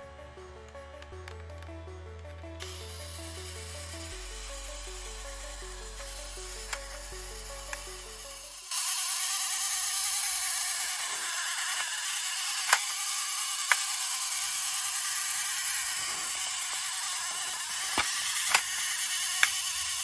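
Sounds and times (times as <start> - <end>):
clockwork mechanism whirring: 0.0 - 20.0
sharp plastic clicks: 12.6 - 13.0, 13.6 - 14.0, 17.9 - 19.6.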